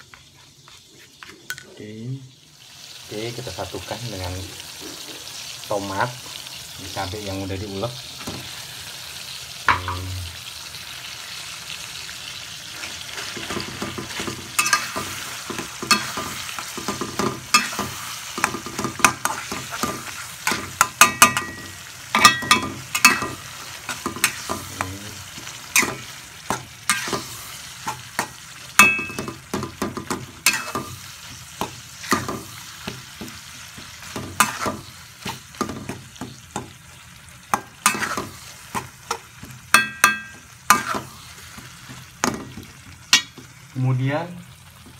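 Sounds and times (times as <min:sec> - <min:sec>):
sauce sizzling in metal pan: 0:00.0 - 0:44.9
metal spoon scraping a pan: 0:12.7 - 0:43.4.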